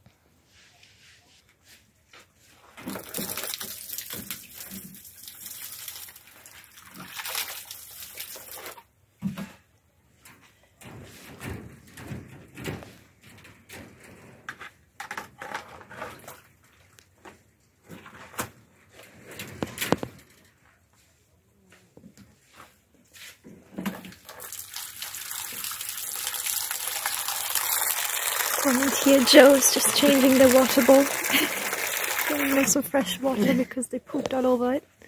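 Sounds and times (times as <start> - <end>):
water pouring: 2.8 - 8.9, 23.9 - 33.8.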